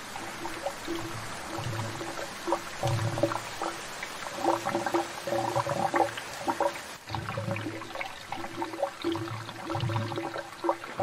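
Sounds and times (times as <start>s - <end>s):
water gurgling through pipes: 0.0s - 11.0s.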